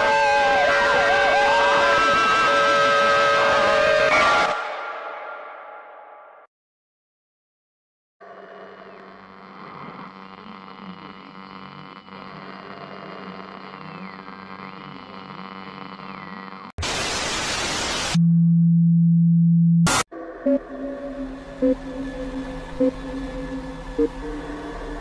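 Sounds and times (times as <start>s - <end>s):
static hiss bursts: 16.8s - 18.2s
loud steady low hum: 18.2s - 25.0s
eerie droning music: 20.1s - 25.0s.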